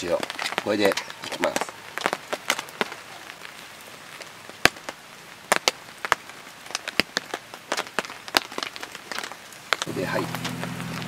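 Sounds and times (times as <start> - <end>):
grill pops and crackles: 0.0 - 11.0.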